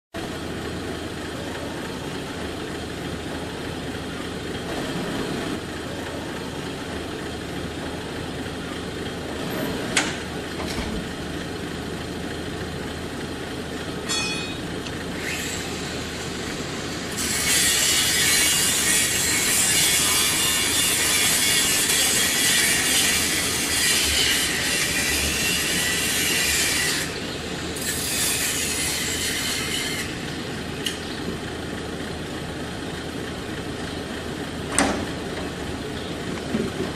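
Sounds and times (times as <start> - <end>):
angle grinder cutting metal: 14.1 - 31.1.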